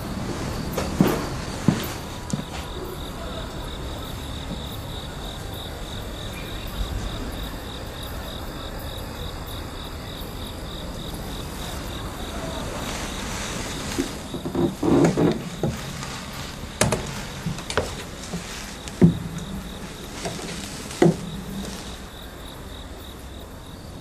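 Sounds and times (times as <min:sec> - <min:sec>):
background hiss: 0:00.0 - 0:24.0
crickets chirping: 0:00.0 - 0:24.0.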